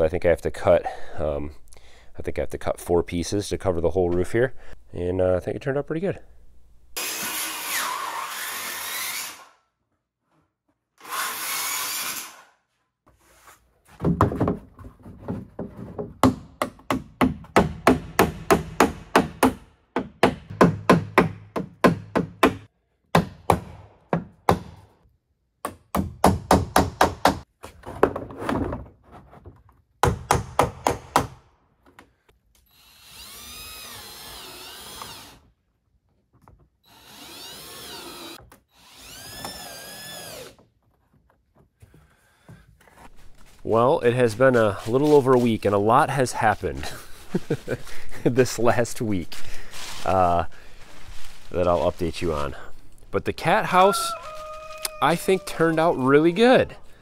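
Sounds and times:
circular saw cutting roofing: 0:07.0 - 0:09.6, 0:11.0 - 0:12.7, 0:32.6 - 0:35.5, 0:36.8 - 0:40.8
hammer nailing: 0:14.0 - 0:24.8, 0:25.6 - 0:27.4
cordless drill whirring: 0:32.7 - 0:35.4, 0:36.9 - 0:40.6.

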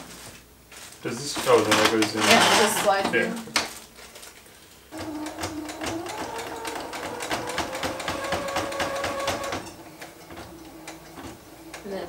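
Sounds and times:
sewing machine stitching: 0:05.0 - 0:12.0.

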